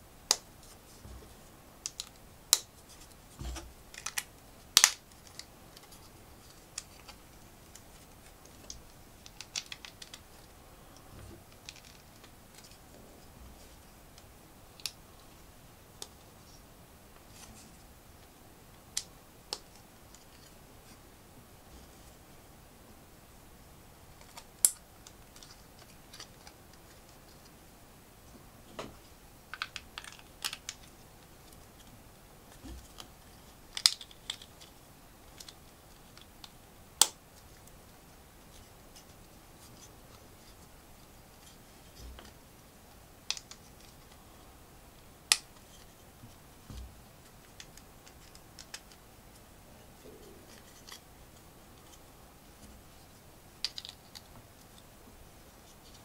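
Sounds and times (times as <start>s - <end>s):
plastic bricks clicking: 8.5s - 10.2s, 53.6s - 54.3s.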